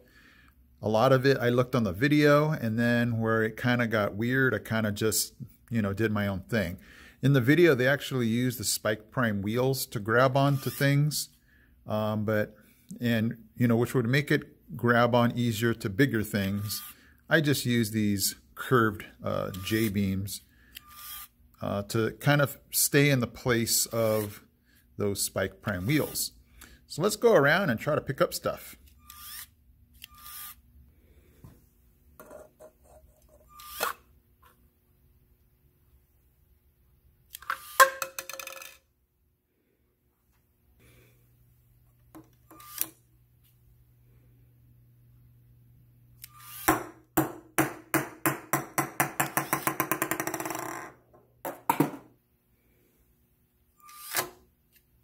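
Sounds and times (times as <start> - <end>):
small motor whirring: 20.7 - 21.3, 28.9 - 30.6, 33.5 - 34.0, 46.2 - 46.7, 53.8 - 54.3
ball bouncing on wooden table: 46.7 - 52.1.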